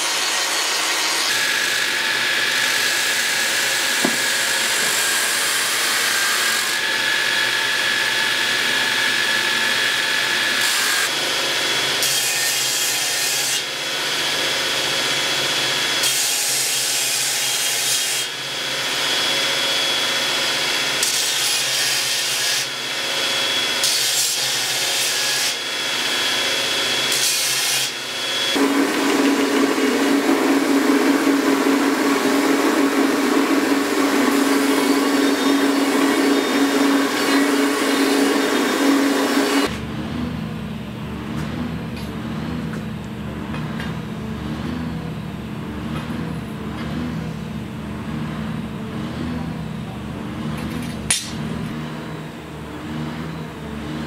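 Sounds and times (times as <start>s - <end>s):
belt grinder whine: 0.0s - 16.2s, 18.0s - 40.6s, 50.3s - 54.0s
blade grinding on belt: 18.0s - 39.7s.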